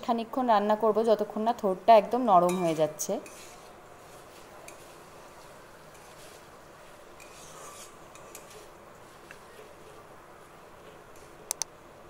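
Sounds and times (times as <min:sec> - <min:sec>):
metal spatula scraping a wok: 0:02.5 - 0:04.9, 0:07.2 - 0:08.7.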